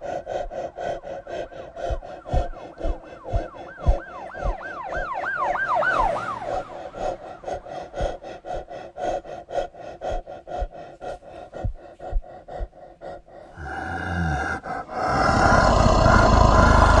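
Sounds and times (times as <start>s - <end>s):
even pulsing sound: 0.0s - 13.2s
loud sustained roar: 15.0s - 17.0s.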